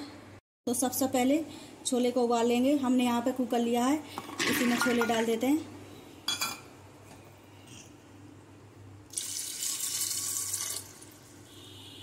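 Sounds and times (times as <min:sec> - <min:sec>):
water pouring into a pot: 0:09.1 - 0:11.4.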